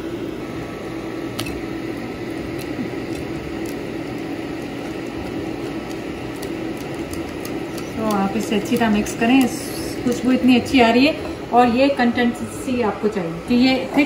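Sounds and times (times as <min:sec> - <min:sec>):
fan-like hum: 0:00.0 - 0:14.0
whisk stirring wet batter: 0:02.6 - 0:10.9
whisk clicking on glass bowl: 0:06.3 - 0:10.3.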